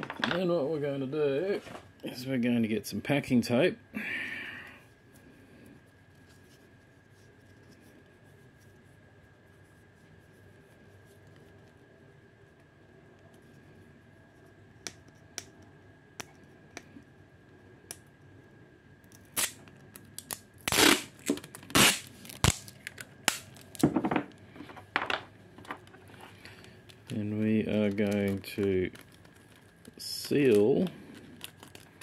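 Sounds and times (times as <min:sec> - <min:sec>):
packing tape ripping off roll: 0:19.2 - 0:23.9, 0:26.4 - 0:32.0.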